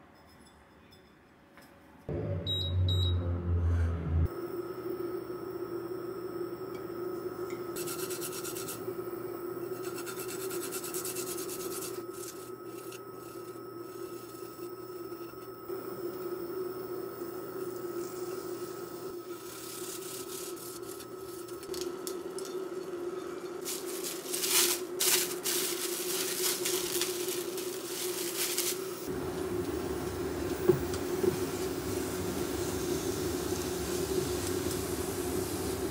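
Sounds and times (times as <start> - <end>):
steady hum: 2.1 - 35.9
metal grater rasping: 9.7 - 13.6.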